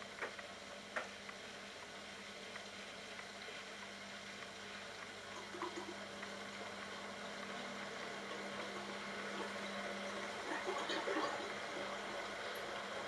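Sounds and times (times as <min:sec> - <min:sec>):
washing machine motor humming: 0:04.3 - 0:13.0.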